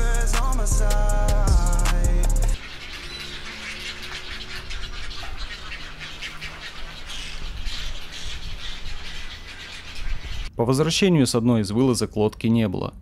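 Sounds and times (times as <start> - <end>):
birds chattering and squawking: 2.6 - 10.5.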